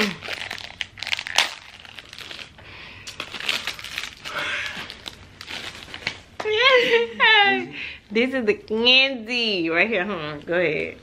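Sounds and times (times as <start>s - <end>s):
plastic packaging crinkling: 0.0s - 6.4s.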